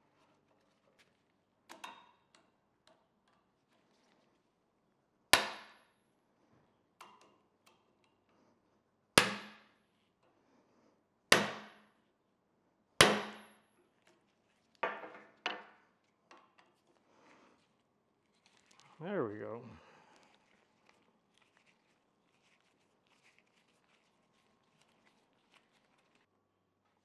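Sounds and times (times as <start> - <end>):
hammer striking steel punch: 9.2 - 9.6, 11.3 - 11.8, 13.0 - 13.5
tools knocking on bench: 14.8 - 15.8.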